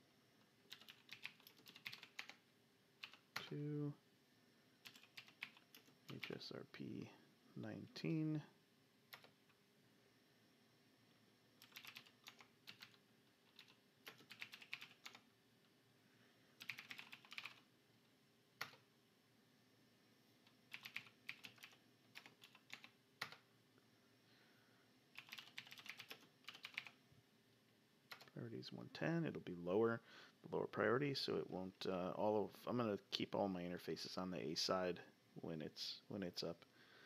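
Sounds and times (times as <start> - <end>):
computer keyboard typing: 0.7 - 2.4, 3.0 - 3.5, 4.8 - 6.4, 9.1 - 9.4, 11.6 - 15.2, 16.6 - 17.6, 18.6 - 18.8, 20.4 - 23.4, 25.2 - 27.0, 28.1 - 28.3.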